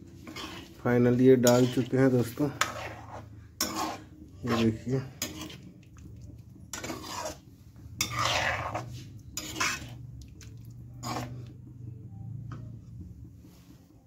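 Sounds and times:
metal spoon scraping pot: 0.1s - 11.7s
low hum: 9.0s - 13.5s.

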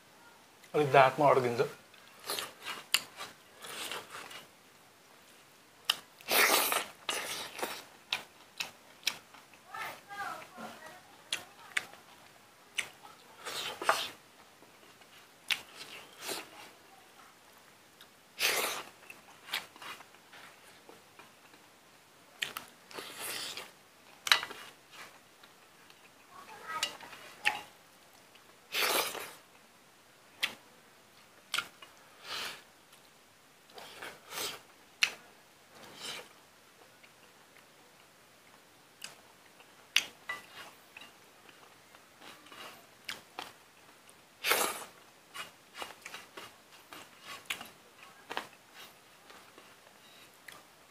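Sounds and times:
man chewing and smacking lips: 5.3s - 9.6s, 11.3s - 16.5s, 22.4s - 26.3s, 31.2s - 32.0s, 32.9s - 50.8s.

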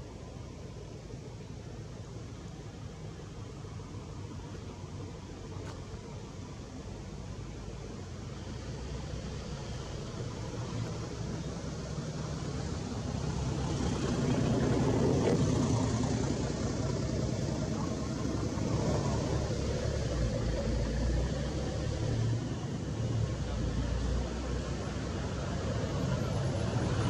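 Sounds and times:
engine rumbling: 0.0s - 27.0s.

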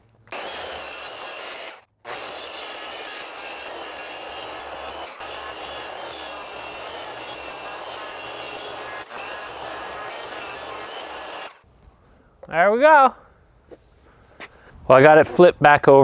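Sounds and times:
circular saw cutting wood: 0.3s - 11.6s.

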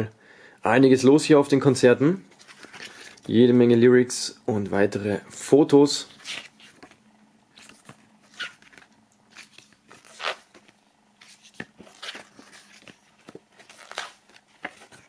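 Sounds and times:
booklet pages turning: 2.3s - 3.4s, 6.1s - 15.0s.

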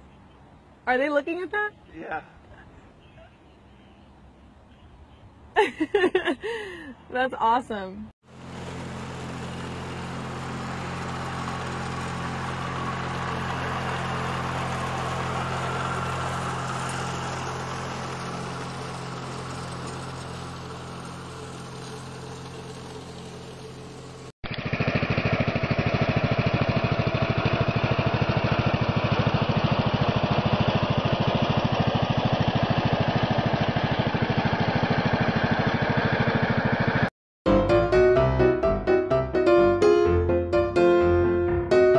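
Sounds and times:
riding lawn mower engine: 8.2s - 37.1s
small mower engine throbbing: 8.2s - 39.6s.

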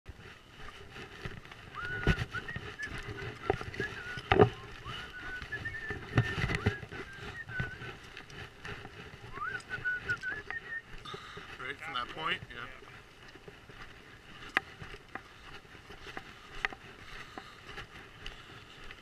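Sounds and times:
footsteps crunching on gravel: 0.1s - 19.0s
gear knocking: 1.1s - 10.8s.

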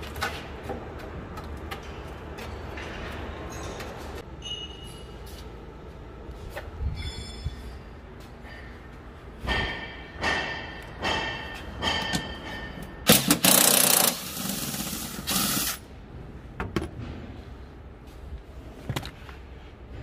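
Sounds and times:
loud hiss: 13.9s - 15.8s.

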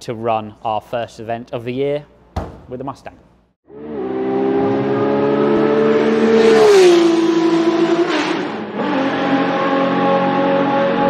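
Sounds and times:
racing car engine at high revs: 3.7s - 11.0s.

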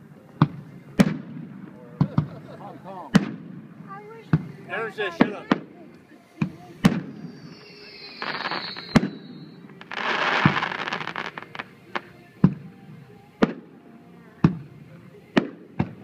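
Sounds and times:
fireworks booming: 0.4s - 2.5s, 3.1s - 4.5s, 6.4s - 12.6s
fireworks crackling: 3.1s - 12.7s
falling firework whistle: 6.8s - 11.6s.

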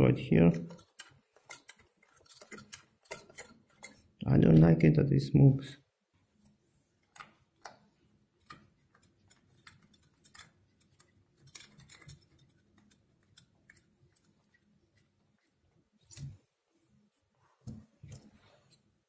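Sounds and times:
faint clicks and taps: 6.1s - 16.5s.

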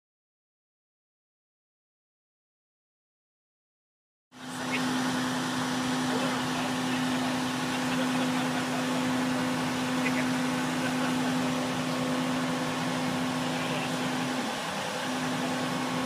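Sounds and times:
diesel engine droning: 4.4s - 16.0s.

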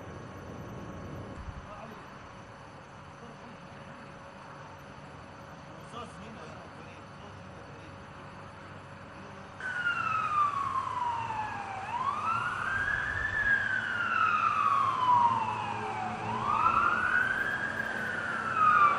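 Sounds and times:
siren wailing: 9.6s - 18.9s.

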